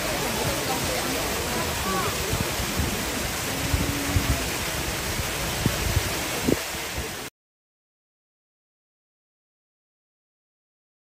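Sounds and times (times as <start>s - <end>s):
water rushing and splashing: 0.0s - 7.3s.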